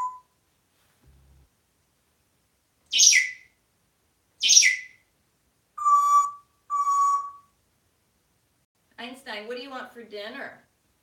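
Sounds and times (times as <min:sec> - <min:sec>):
parrot whistled notes: 0:00.0 - 0:00.2, 0:03.0 - 0:03.4, 0:05.8 - 0:07.5.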